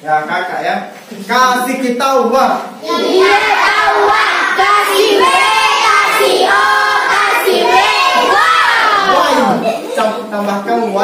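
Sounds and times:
children singing a chant together: 2.8s - 9.7s.

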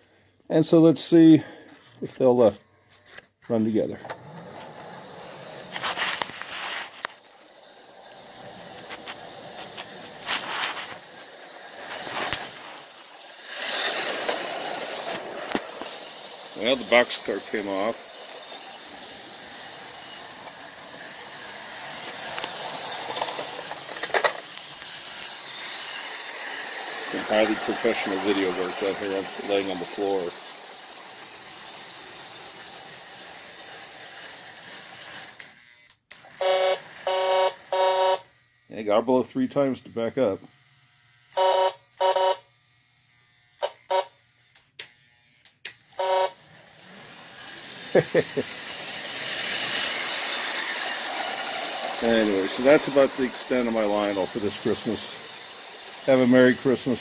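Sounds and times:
toy train clattering on rails: 4.0s - 37.9s, 45.6s - 57.0s
toy train whistle toots: 36.2s - 38.3s, 41.3s - 42.5s, 43.6s - 44.2s, 45.9s - 46.6s
sharp clicks: 44.5s - 46.0s.

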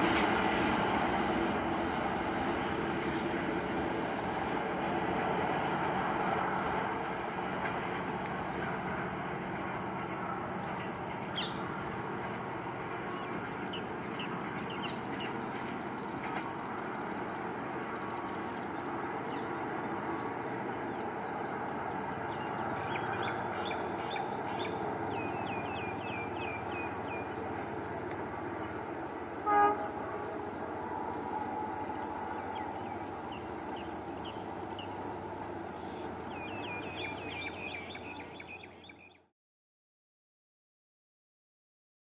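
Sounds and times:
train rumble: 0.0s - 39.2s
birds chirping: 12.7s - 39.2s
train horn toot: 29.3s - 30.6s.

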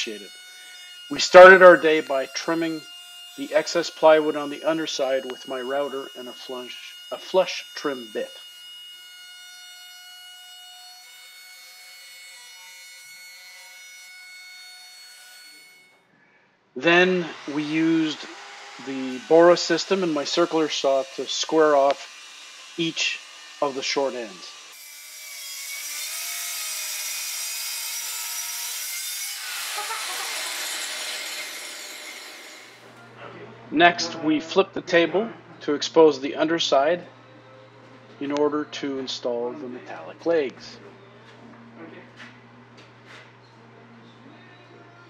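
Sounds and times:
router trimming plywood: 0.0s - 8.6s, 17.1s - 24.9s, 25.8s - 32.8s
circular saw cutting wood: 0.0s - 15.9s, 16.8s - 33.0s.

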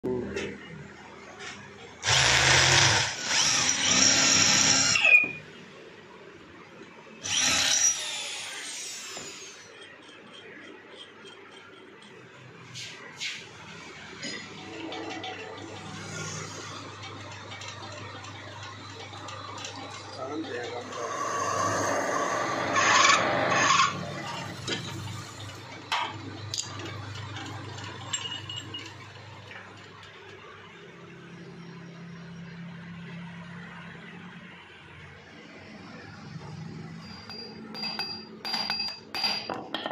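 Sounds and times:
electric drill boring metal: 2.0s - 5.4s, 7.2s - 9.8s
lathe tool scraping metal: 20.8s - 25.4s.

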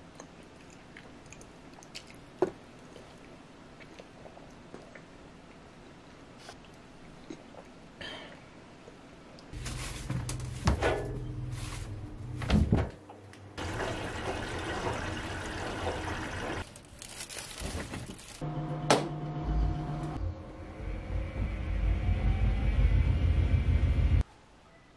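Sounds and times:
washing machine motor hum: 13.6s - 16.6s, 18.4s - 24.2s
water swishing in drum: 13.6s - 16.6s.

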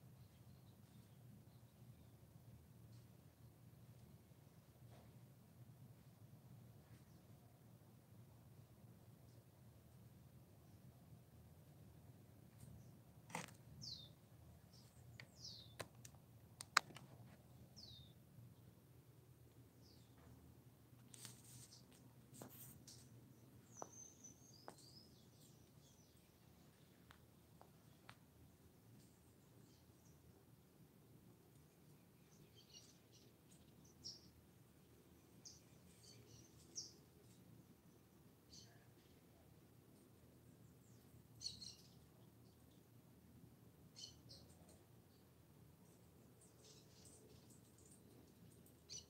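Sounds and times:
sharp clicks: 15.2s - 17.1s.

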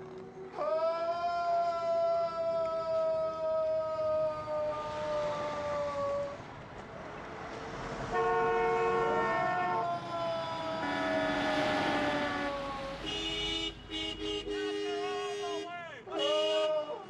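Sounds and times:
street traffic passing: 0.0s - 17.0s
man yelling: 0.6s - 6.4s, 9.4s - 11.0s, 14.6s - 17.0s
car horn: 8.1s - 17.0s.

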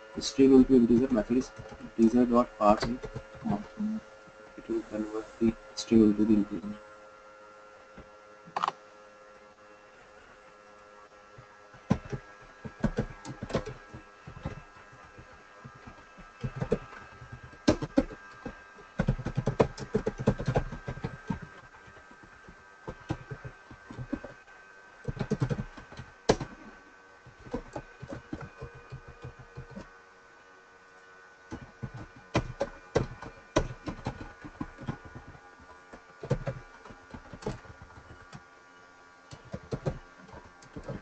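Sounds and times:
faint steady hum: 0.0s - 41.0s
keyboard typing clicks: 8.5s - 8.8s, 15.8s - 21.6s, 25.1s - 26.6s, 27.4s - 29.9s, 31.5s - 35.4s, 36.0s - 38.4s, 39.3s - 41.0s.

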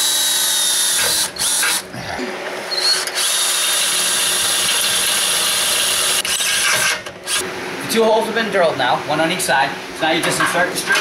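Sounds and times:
power drill whining: 0.0s - 1.8s, 2.7s - 7.4s.

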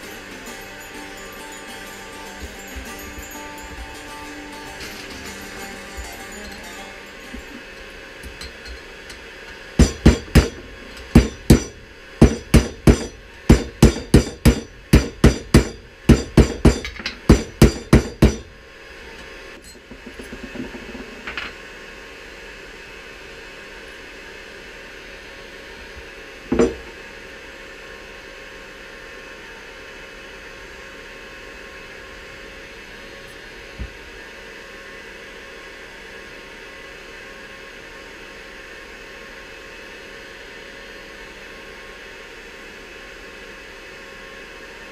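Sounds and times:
hammer tapping on metal: 9.8s - 18.5s.

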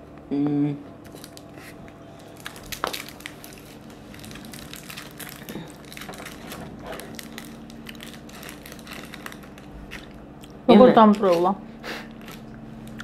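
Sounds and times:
plastic wrapper crinkling: 1.0s - 10.2s.

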